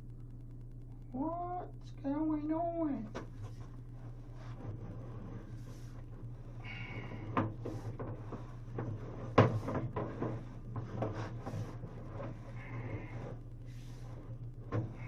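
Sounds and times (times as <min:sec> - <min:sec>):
steady low hum: 0:00.0 - 0:15.0
knocks and clatters: 0:06.0 - 0:13.2.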